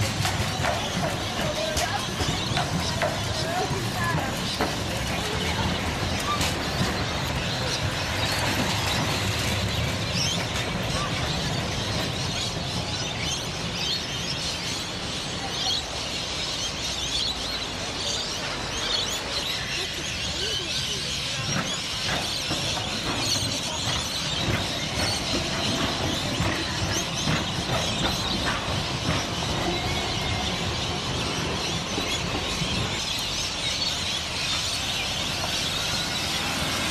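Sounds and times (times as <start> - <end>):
birds chirping: 0.0 - 36.9
traffic rumble: 0.0 - 36.9
trams running past: 0.0 - 36.9.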